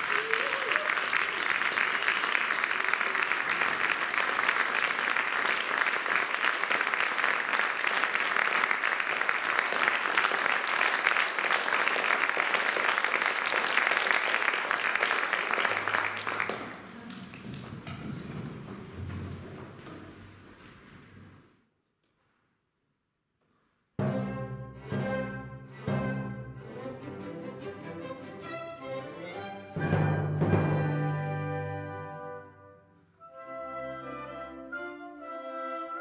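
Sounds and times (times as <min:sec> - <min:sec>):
audience applauding: 0:00.0 - 0:19.8.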